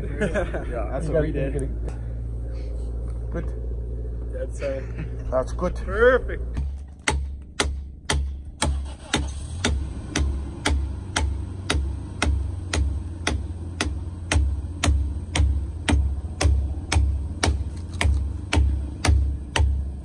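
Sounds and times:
adze chopping wood: 6.6 - 20.0.

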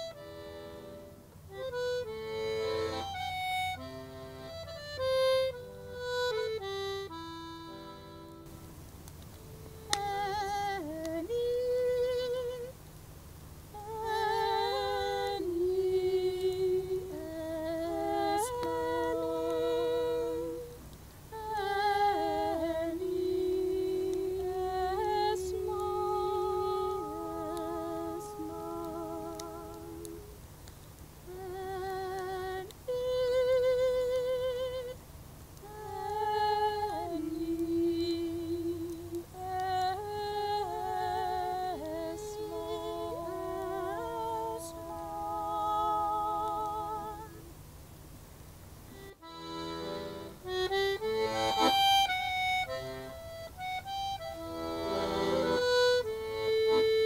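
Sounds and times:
women singing in harmony: 9.8 - 12.7, 13.7 - 30.4, 35.6 - 47.5.

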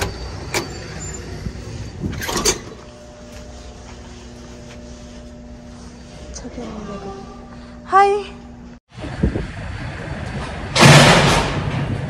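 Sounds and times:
steady low hum: 0.0 - 10.7
latch and door clatter: 2.1 - 2.8.

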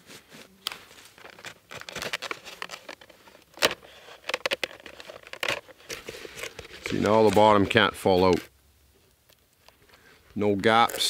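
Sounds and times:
stick scraping and clicking: 1.2 - 8.4.

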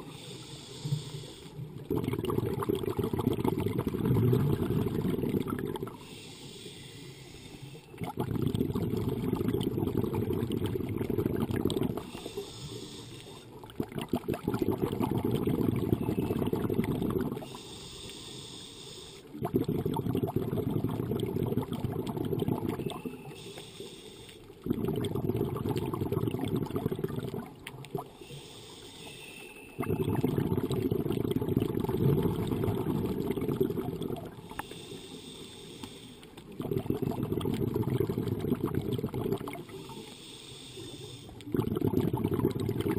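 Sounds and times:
regulator hissing inhale: 0.0 - 1.7, 6.0 - 7.9, 12.0 - 13.6, 17.4 - 19.3, 23.2 - 24.6, 28.2 - 29.7, 34.4 - 36.4, 39.6 - 41.4
bubbling rush of exhaled air: 1.6 - 6.0, 7.9 - 17.6, 19.3 - 23.4, 24.6 - 28.2, 29.8 - 35.4, 36.4 - 40.0, 41.3 - 42.9.

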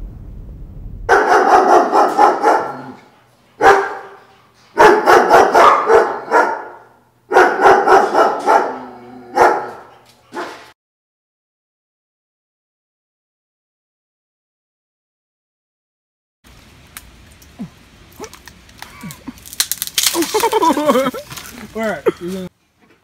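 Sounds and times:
dog barking: 1.1 - 3.0, 3.6 - 10.7.

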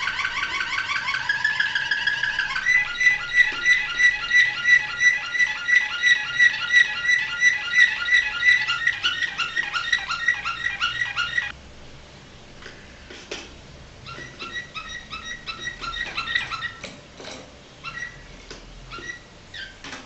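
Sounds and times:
canary singing: 0.0 - 11.6, 14.0 - 16.9, 17.8 - 18.3, 18.9 - 19.9.

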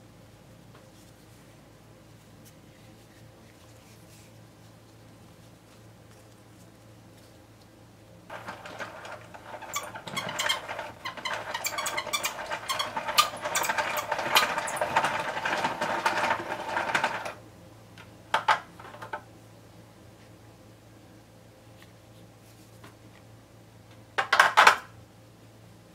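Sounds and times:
hand-cranked gears rattling: 8.3 - 17.4.

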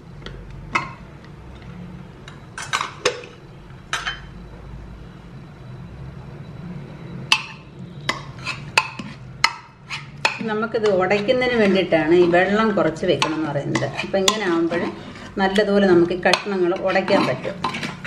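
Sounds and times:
ladle scraping a pot: 8.0 - 18.0.

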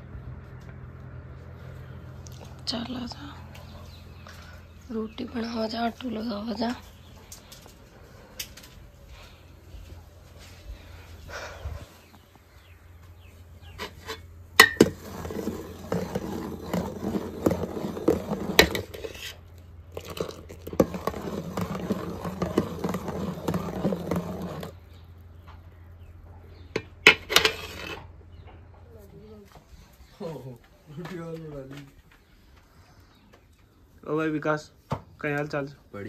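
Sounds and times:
ladle stirring liquid in pot: 13.8 - 24.8.

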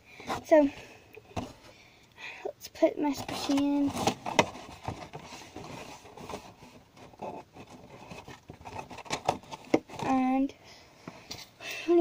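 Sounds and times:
cardboard scraping and rustling: 3.1 - 10.4.

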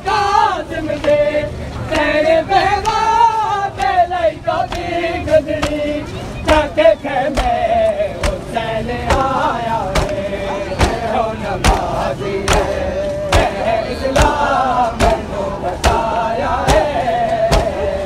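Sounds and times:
crowd chanting in unison: 0.0 - 18.0
chest-beating slaps: 5.6 - 5.9, 6.5 - 13.6, 14.2 - 17.9.

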